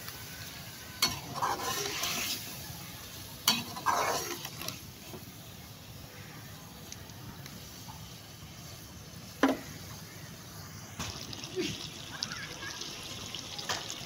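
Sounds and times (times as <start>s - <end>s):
food sizzling: 0.0s - 14.0s
spoon scraping through frying food: 1.0s - 2.6s, 3.4s - 5.3s.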